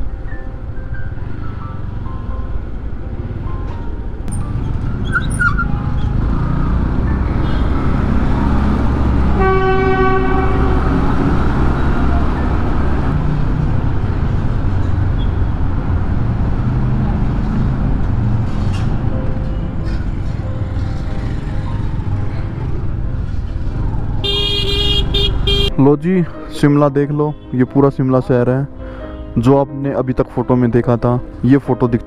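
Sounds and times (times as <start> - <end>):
traffic rumble in tunnel: 0.0 - 25.8
vehicle horn: 7.4 - 8.1, 9.3 - 11.4, 24.2 - 25.7.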